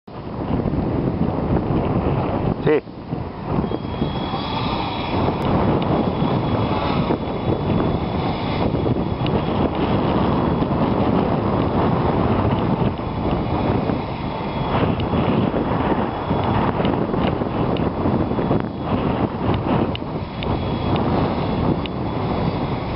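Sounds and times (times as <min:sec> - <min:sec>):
wind buffeting microphone: 0:00.1 - 0:22.9
faint drone motor whine: 0:00.2 - 0:22.9.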